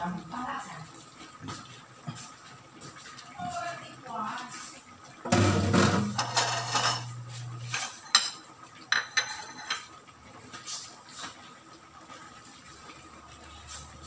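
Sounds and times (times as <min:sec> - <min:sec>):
dishes and utensils clattering: 0:05.3 - 0:10.0.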